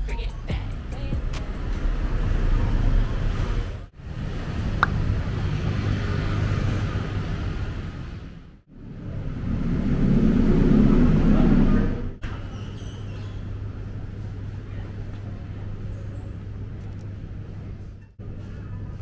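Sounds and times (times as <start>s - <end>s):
city traffic rumble: 0.0s - 19.0s.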